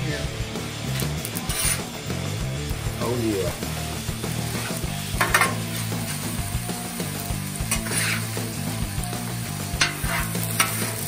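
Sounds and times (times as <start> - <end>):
vegetables sizzling on griddle: 0.0 - 11.0
metal spatulas scraping steel: 1.4 - 1.9, 7.7 - 8.4, 9.8 - 11.0.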